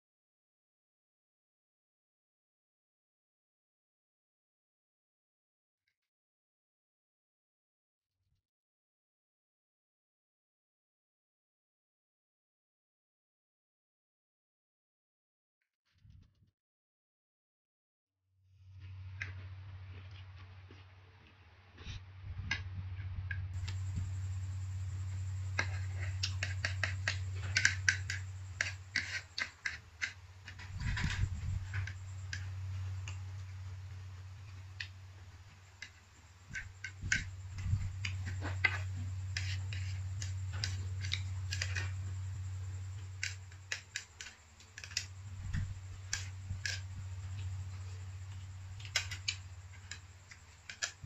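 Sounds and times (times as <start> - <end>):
low hum: 18.6 - 51.0
chopsticks clicking on a plate: 25.5 - 31.1, 43.0 - 51.0.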